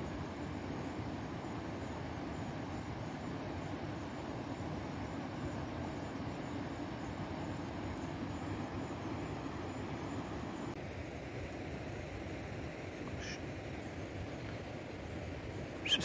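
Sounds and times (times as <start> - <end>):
low rushing background noise: 0.0 - 16.0.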